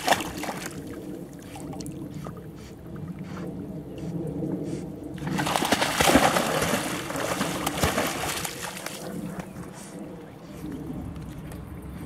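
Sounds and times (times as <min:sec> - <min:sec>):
puppy splashing in water: 0:00.0 - 0:02.0, 0:05.2 - 0:12.0.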